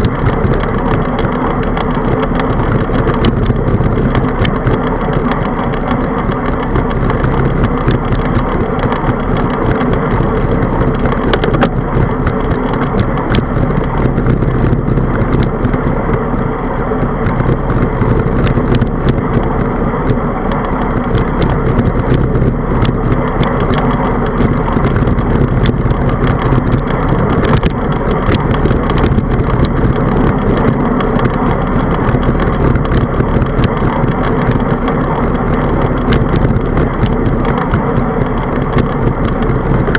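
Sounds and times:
bicycle tyres rolling on asphalt: 0.0 - 39.9
small clicks: 0.0 - 39.9
wind rush on microphone: 0.0 - 39.9.

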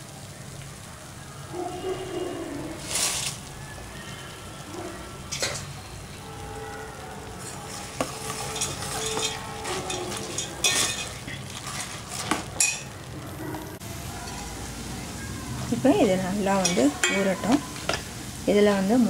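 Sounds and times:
ladle stirring syrup in pot: 7.4 - 13.0
ladle clinking against pot: 7.9 - 12.9, 16.6 - 18.0.

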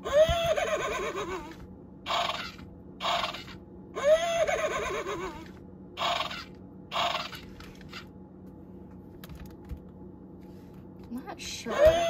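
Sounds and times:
toy horse whinny: 0.0 - 8.0.

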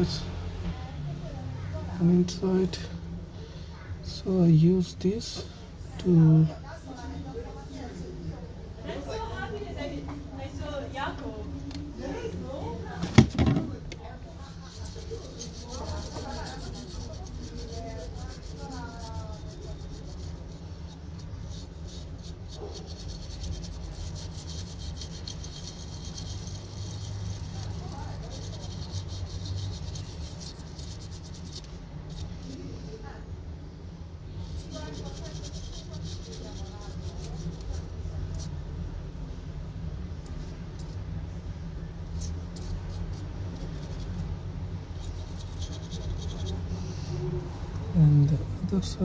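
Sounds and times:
steady low hum: 0.0 - 49.0
brush scrubbing circuit board: 14.4 - 32.7, 34.3 - 38.6, 42.0 - 44.3, 44.9 - 46.7.

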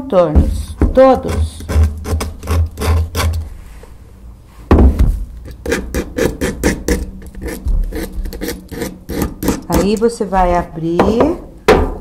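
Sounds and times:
knife blade scraping paint: 1.1 - 3.4, 5.4 - 10.1
thump: 4.7 - 5.2, 11.7 - 12.0.

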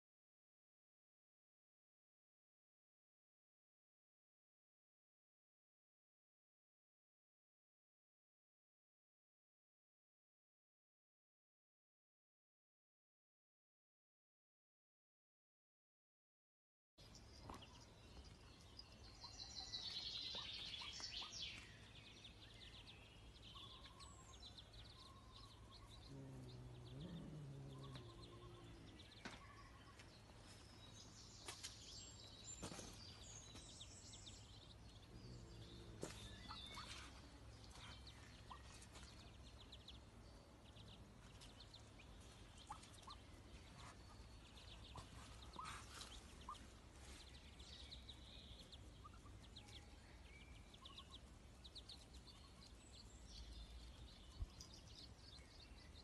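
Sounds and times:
ducklings peeping: 17.1 - 30.8, 31.4 - 56.0.

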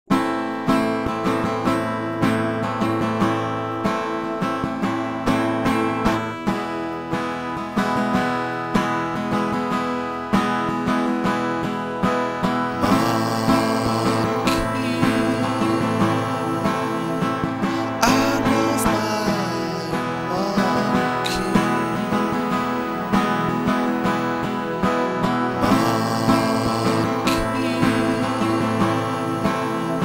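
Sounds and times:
plucked and strummed guitar: 0.1 - 30.0
sustained tones: 12.7 - 30.0.

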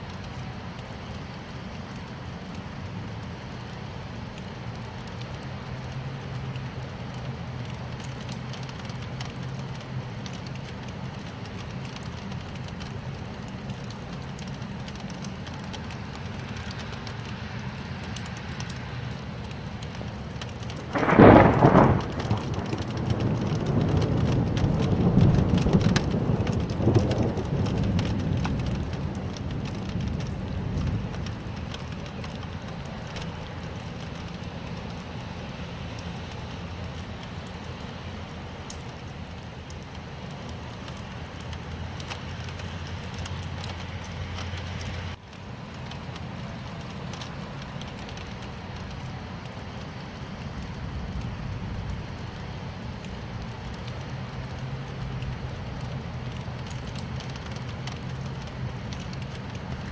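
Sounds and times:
steady rain falling: 0.0 - 59.9
thunder rumble: 20.6 - 35.0, 49.7 - 57.7.

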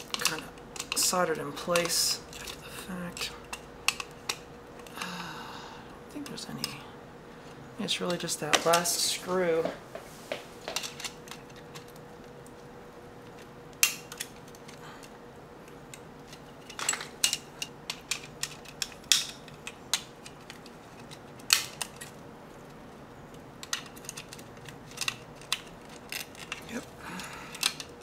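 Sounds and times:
metal clicks and snaps on plastic: 15.6 - 22.1, 27.5 - 28.0.

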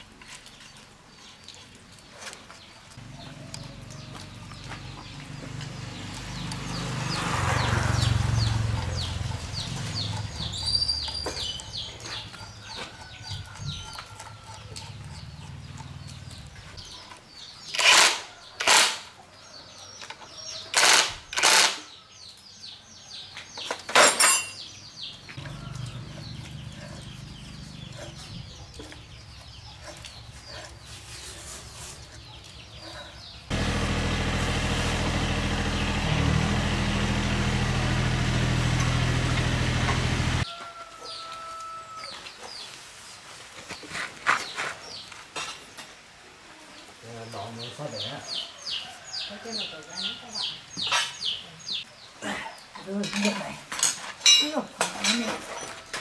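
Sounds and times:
impact wrench bursts: 17.7 - 19.1, 20.8 - 21.8.

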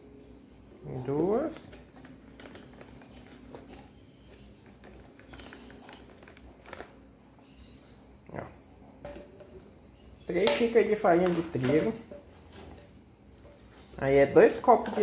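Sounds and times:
paper bag rustling: 1.4 - 7.1.

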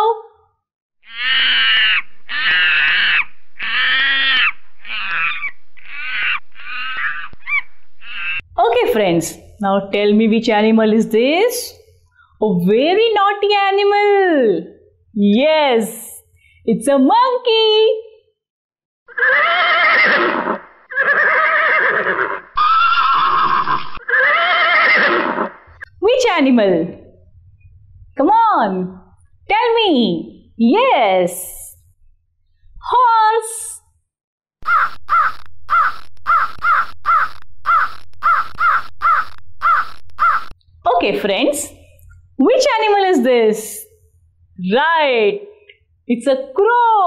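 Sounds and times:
monkey calling: 1.0 - 8.5, 34.6 - 40.6
horse neighing: 1.1 - 8.5, 19.1 - 25.8.

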